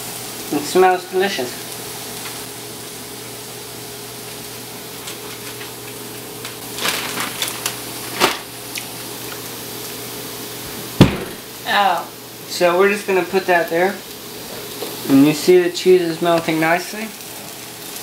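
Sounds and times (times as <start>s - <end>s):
hash browns sizzling in a pan: 0.0s - 18.0s.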